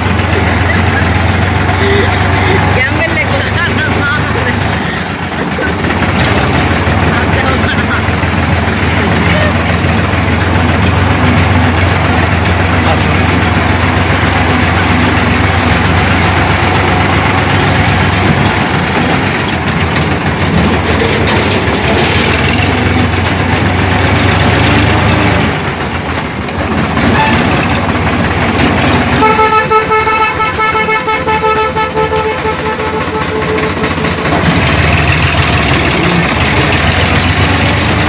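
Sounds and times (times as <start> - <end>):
tractor diesel engine running: 0.0 - 38.0
long horn blast: 27.0 - 27.6, 29.1 - 34.0.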